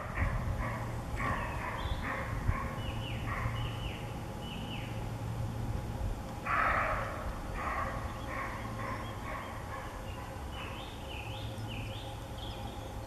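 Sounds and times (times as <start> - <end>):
deer barking: 6.5 - 10.8.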